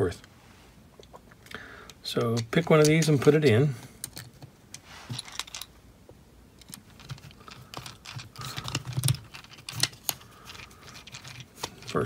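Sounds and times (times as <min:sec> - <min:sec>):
rubbing and handling noise: 0:00.0 - 0:12.0
small plastic parts clicking: 0:01.0 - 0:05.7, 0:06.6 - 0:12.0.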